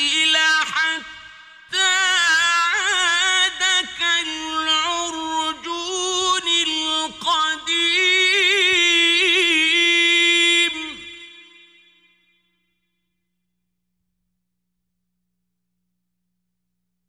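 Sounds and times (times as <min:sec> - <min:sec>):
man chanting with vibrato: 0:00.0 - 0:12.3.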